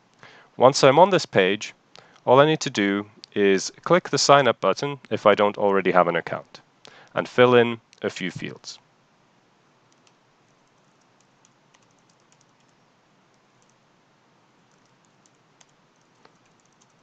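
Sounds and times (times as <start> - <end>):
typing on keyboard: 9.9 - 12.8, 13.6 - 13.8, 14.7 - 17.0.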